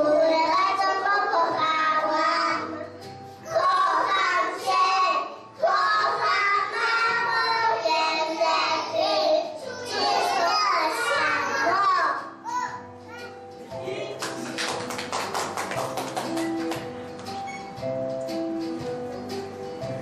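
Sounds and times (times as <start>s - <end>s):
young children singing: 0.0s - 12.8s
musical accompaniment: 0.0s - 20.0s.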